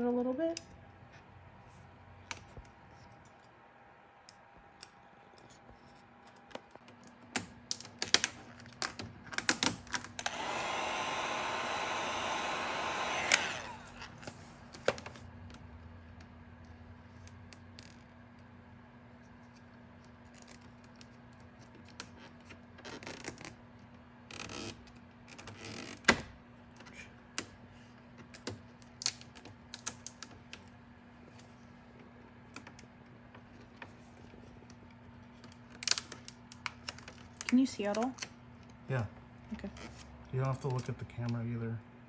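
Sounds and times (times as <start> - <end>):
heat gun blowing hiss: 10.3 - 14.1
heat gun switch click: 12.5 - 13.7.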